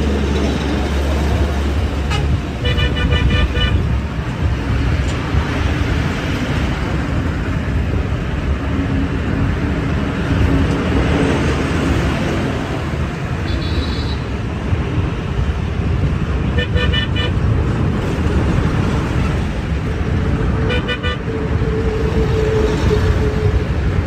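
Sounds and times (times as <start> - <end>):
traffic noise inside moving car: 0.0 - 24.0
vehicle horn pulsing: 2.1 - 3.9, 13.5 - 14.3, 16.6 - 17.4, 20.7 - 21.2.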